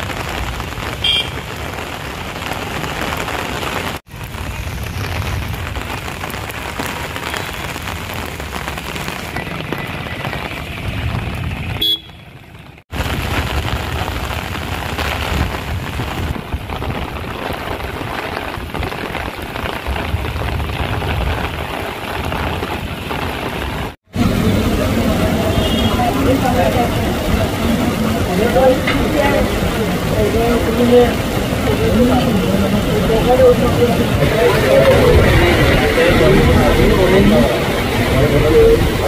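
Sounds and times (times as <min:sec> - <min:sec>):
heavy rain hissing: 0:00.0 - 0:11.8, 0:12.9 - 0:39.0
traffic moving through water: 0:00.0 - 0:12.8, 0:21.4 - 0:39.0.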